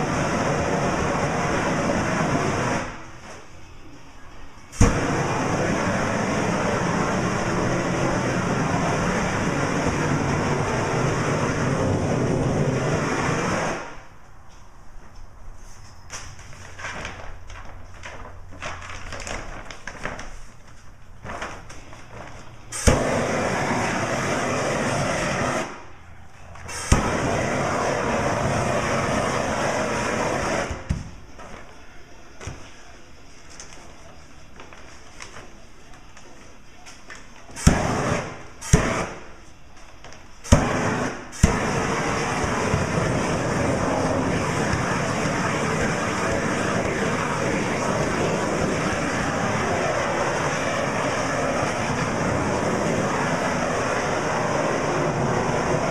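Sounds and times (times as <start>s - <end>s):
heat gun pop: 4.8s - 5.2s, 22.8s - 23.4s, 26.7s - 27.3s, 37.6s - 39.2s, 40.5s - 43.1s
plastic shrink wrap crinkling: 16.1s - 22.7s, 33.4s - 37.5s
heat gun rushing noise: 22.8s - 25.8s, 26.7s - 30.9s, 37.6s - 39.3s, 40.5s - 55.9s
torch trigger and igniter clicks: 26.6s - 31.0s, 40.5s - 55.5s.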